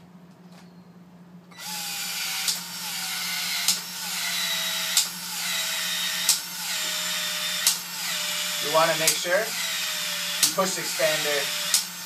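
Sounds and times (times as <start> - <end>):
tool motor whirring: 1.5 - 12.0
sharp tool clicks: 2.4 - 2.6, 3.6 - 3.9, 4.9 - 5.2, 6.2 - 6.9, 7.6 - 7.8, 10.4 - 10.7, 11.6 - 11.9.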